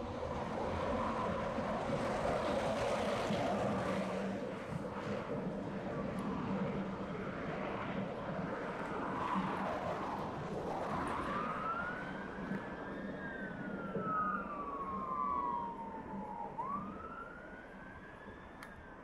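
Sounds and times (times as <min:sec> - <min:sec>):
fire engine siren wailing: 0:08.4 - 0:19.0.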